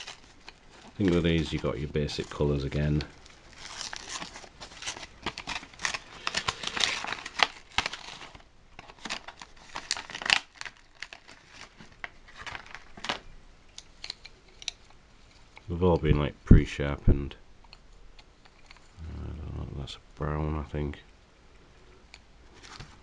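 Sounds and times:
packaging crinkling and rustling: 0.0s - 15.7s, 22.5s - 23.0s.

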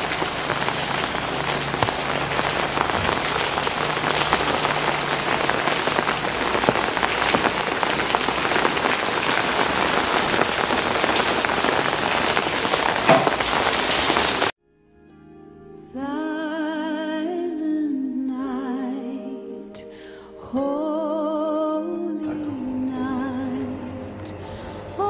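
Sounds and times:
rain on a wet street: 0.0s - 14.5s.

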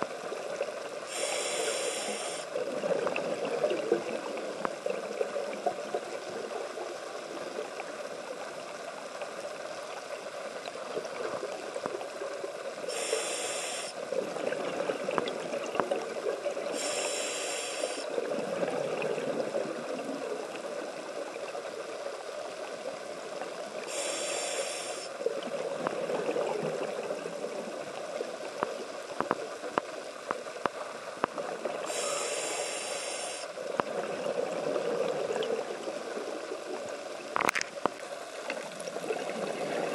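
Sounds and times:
scuba regulator breath hisses: 1.1s - 2.5s, 12.9s - 14.0s, 16.7s - 18.1s, 23.8s - 25.2s, 31.8s - 33.6s
crackle of small clicks: 1.8s - 12.9s, 14.1s - 16.8s, 25.0s - 32.3s, 33.6s - 39.9s
rumble of exhaled bubbles: 2.5s - 7.8s, 14.1s - 16.8s, 18.1s - 21.4s, 25.2s - 29.6s, 33.6s - 37.8s, 38.4s - 39.9s.

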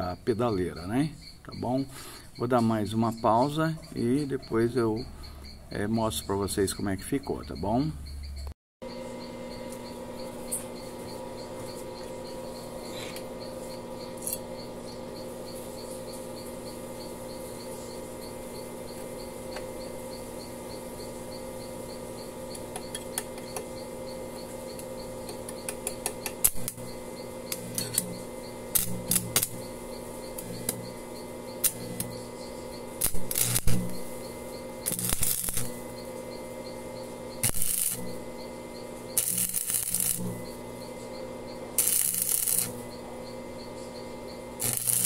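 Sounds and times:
steady hum: 0.0s - 45.0s
welding electrode clicks and crackles: 9.4s - 45.0s.

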